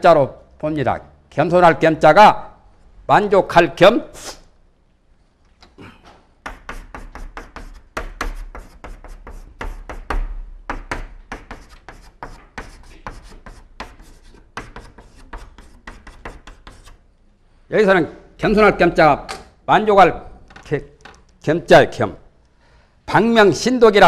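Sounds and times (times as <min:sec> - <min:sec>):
chalk tapping and scraping on blackboard: 0:06.4 - 0:17.0.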